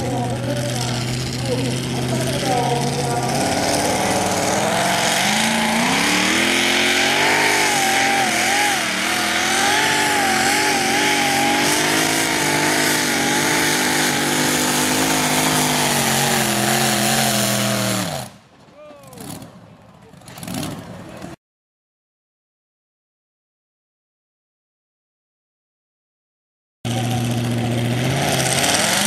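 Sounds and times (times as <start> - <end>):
supercharged engine at full throttle: 0.0 - 18.4, 26.9 - 29.0.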